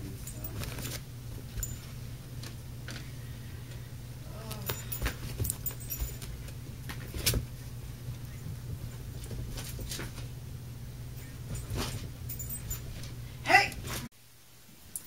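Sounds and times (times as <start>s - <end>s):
dog collar tags jingling: 0.0s - 2.0s, 4.4s - 6.6s, 11.2s - 13.2s
steady low hum: 0.0s - 15.0s.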